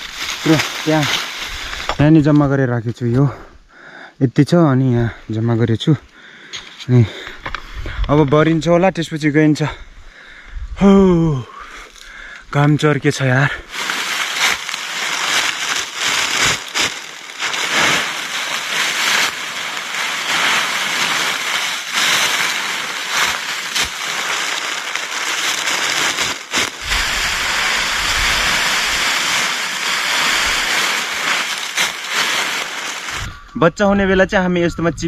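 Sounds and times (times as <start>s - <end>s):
dry leaves crackling and rustling: 0.0s - 2.6s, 11.9s - 34.2s.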